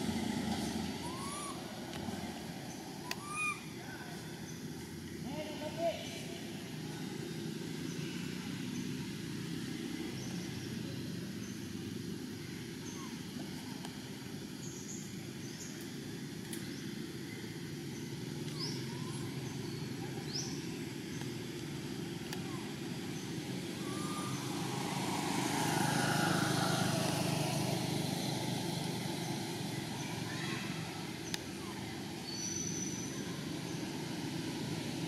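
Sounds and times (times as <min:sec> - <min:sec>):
distant traffic rumble: 0:00.0 - 0:35.0
high rising bird chirps: 0:00.8 - 0:01.7, 0:02.7 - 0:04.7, 0:16.6 - 0:20.7, 0:23.1 - 0:27.2.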